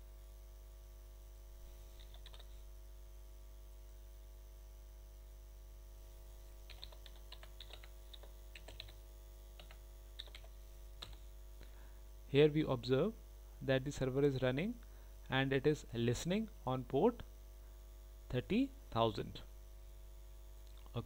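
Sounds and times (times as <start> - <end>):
faint keyboard typing: 1.9 - 2.6, 6.6 - 11.3.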